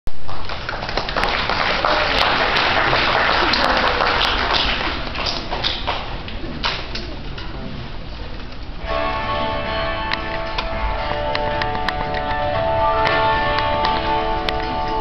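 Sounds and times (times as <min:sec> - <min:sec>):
audience applauding: 0:00.2 - 0:06.2.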